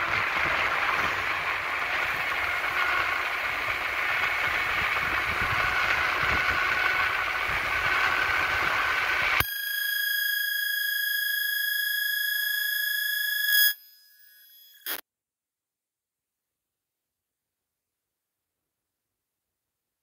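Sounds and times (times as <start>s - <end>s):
wind and road rush: 0.0s - 9.4s
high electronic tone: 5.4s - 15.0s.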